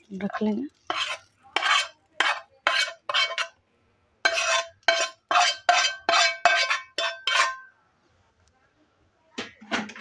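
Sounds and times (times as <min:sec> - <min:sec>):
steel spoon scraping a frying pan: 0:00.0 - 0:03.6, 0:04.2 - 0:07.8.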